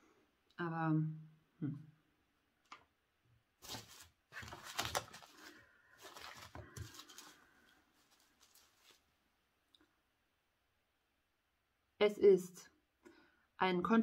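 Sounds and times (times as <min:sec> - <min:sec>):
hands rummaging rustling: 0:03.6 - 0:09.1.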